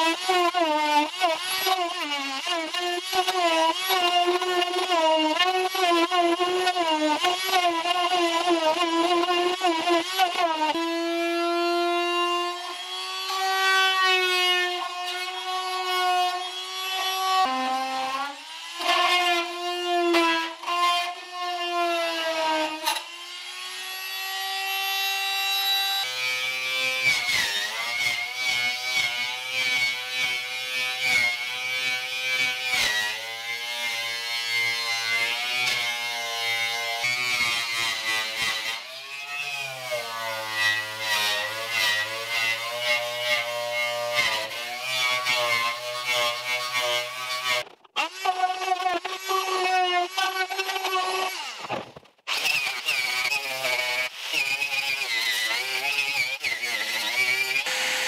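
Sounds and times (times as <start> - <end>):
oscillating multi-tool buzzing: 0.0 - 20.7
angle grinder whining on metal: 0.0 - 58.0.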